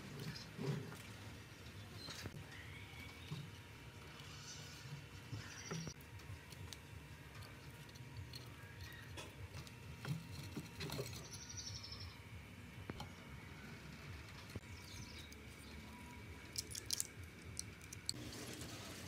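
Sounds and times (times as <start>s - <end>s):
fingers handling wire rustling: 14.5s - 19.0s.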